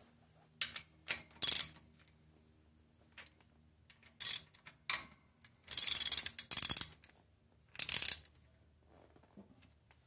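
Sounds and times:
ratchet wrench clicking: 1.4 - 1.8, 4.2 - 4.6, 5.7 - 7.0, 7.8 - 8.3.

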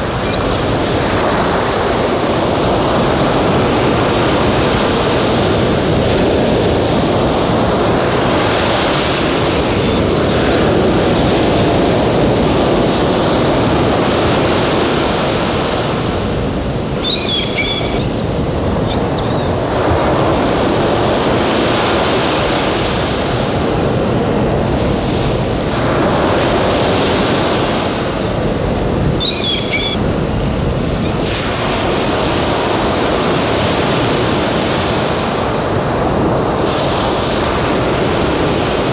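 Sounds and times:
sea surf washing: 0.0 - 38.9
short bird calls: 0.2 - 0.6, 16.1 - 19.5, 29.2 - 30.0.

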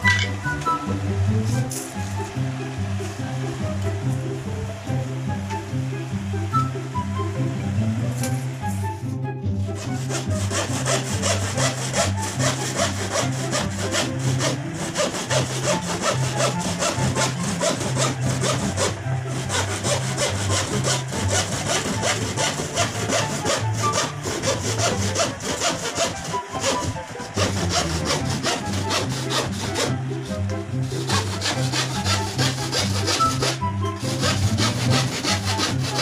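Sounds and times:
hand saw cutting plywood: 9.6 - 36.0.

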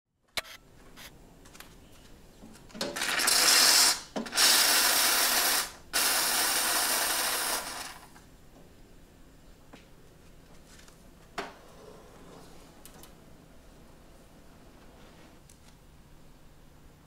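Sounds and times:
espresso machine steam hissing: 3.2 - 8.1.

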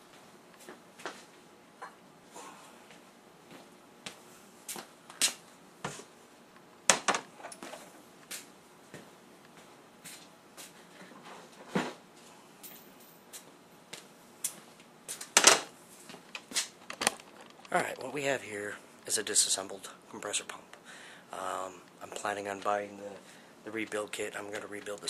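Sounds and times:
metal parts clicking and knocking: 16.3 - 17.7.

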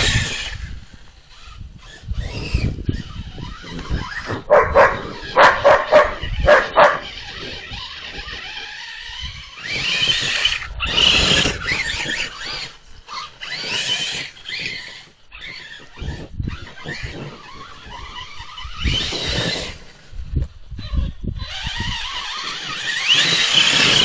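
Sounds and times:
dog barking: 4.5 - 7.1.

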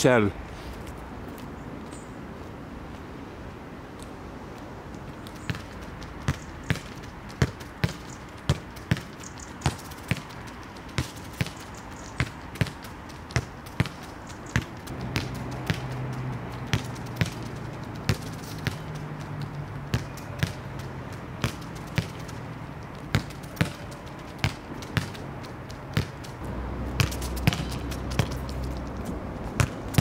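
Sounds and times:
low rumble: 26.4 - 29.5
steady low hum: 26.4 - 30.0.

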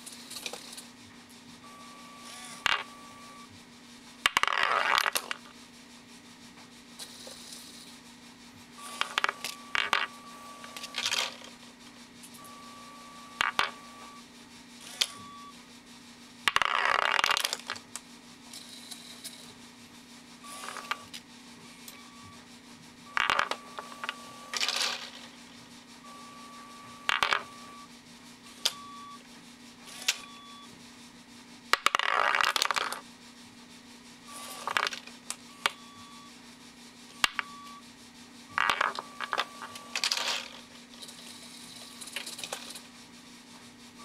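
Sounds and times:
steady low hum: 0.0 - 44.0
plastic pins clattering and clicking: 9.0 - 10.1, 10.7 - 11.5, 13.4 - 13.8, 16.5 - 17.8, 23.2 - 25.3, 27.1 - 27.5, 31.8 - 33.0, 34.6 - 35.0, 38.6 - 42.8.

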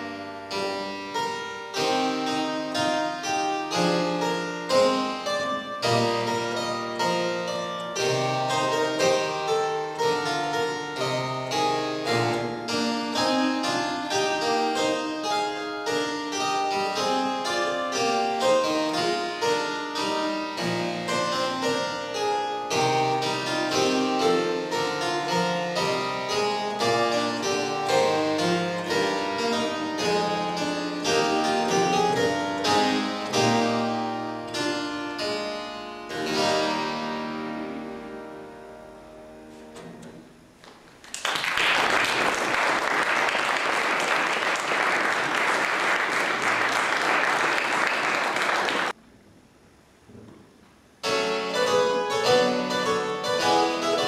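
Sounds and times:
harpsichord playing: 0.0 - 40.5, 51.0 - 54.0
audience applauding: 40.8 - 49.0.

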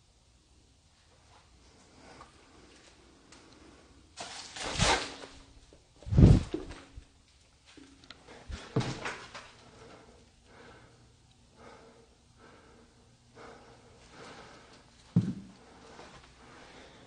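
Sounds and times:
footsteps in a corridor: 7.7 - 10.1, 13.4 - 16.9.

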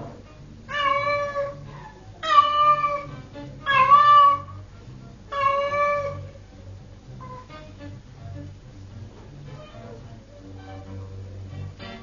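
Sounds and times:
background music: 0.0 - 12.0
cat meowing: 0.7 - 4.6, 5.3 - 6.4.

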